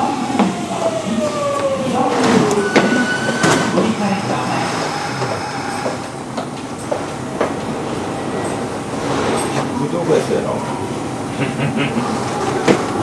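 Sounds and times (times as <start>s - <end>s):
electric train inverter whine: 0.0s - 8.7s.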